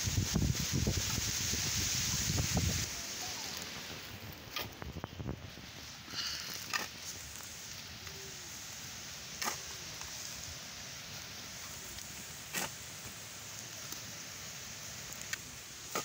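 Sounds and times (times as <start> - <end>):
shovel digging into soil: 6.3 - 7.4, 9.4 - 9.7, 12.4 - 12.9
sharp shovel scrapes: 12.5 - 12.8.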